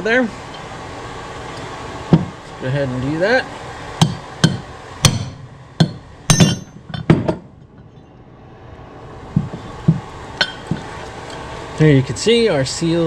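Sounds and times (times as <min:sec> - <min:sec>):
hammer strikes on metal: 0:04.0 - 0:07.5, 0:09.4 - 0:10.9.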